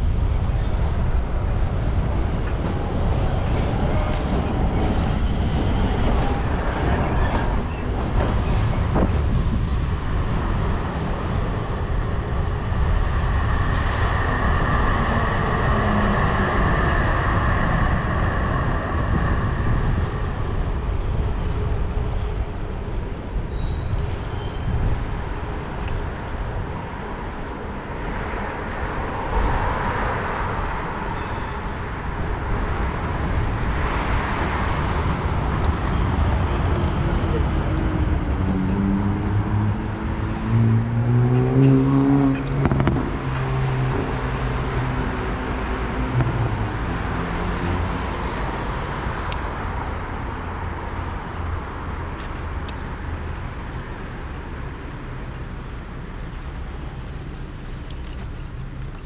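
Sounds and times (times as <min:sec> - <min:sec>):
wind on microphone: 0:00.0 - 0:49.9
city traffic: 0:00.0 - 0:59.0
tram running on tracks: 0:00.0 - 0:59.0.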